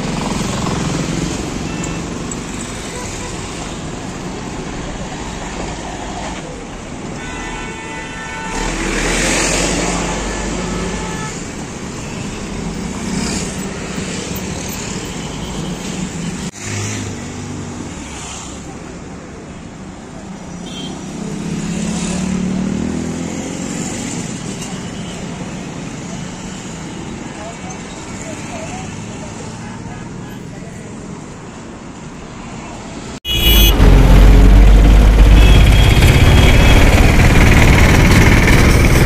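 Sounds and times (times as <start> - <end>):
traffic passing close: 8.4 - 39.0.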